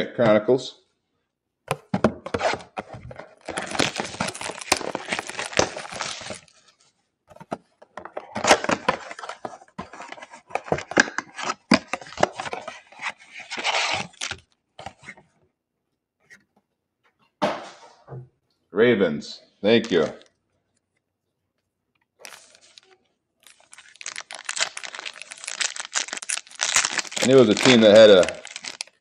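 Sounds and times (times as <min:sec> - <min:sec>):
packaging crinkling and clicks: 0:03.2 - 0:06.5, 0:22.2 - 0:29.0
cardboard box tearing: 0:03.4 - 0:06.4, 0:24.0 - 0:28.8.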